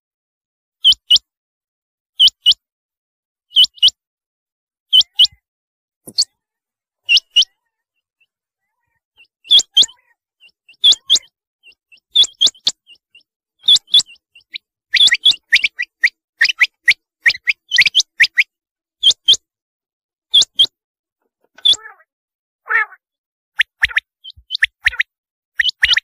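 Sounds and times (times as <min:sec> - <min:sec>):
quail calling: 0:04.9 - 0:05.4, 0:06.1 - 0:19.4, 0:21.4 - 0:23.0, 0:23.6 - 0:26.0.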